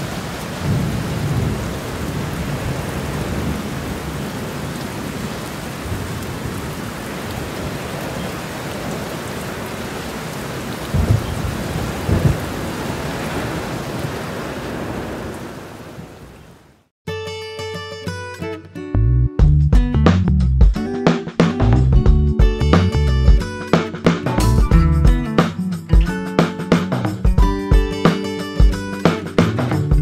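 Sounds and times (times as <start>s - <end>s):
thunder rumbling: 0.0s - 16.5s
steady rain: 0.0s - 16.9s.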